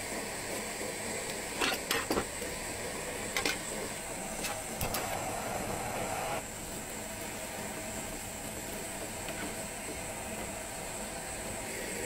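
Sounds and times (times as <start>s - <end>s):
gas burner flame hissing: 0.0s - 12.0s
camping stove clicks and clacks: 1.2s - 2.6s, 3.3s - 3.8s.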